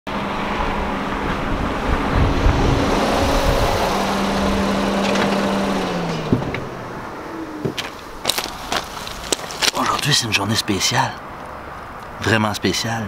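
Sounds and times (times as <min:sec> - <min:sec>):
car engine running: 0:01.9 - 0:09.7.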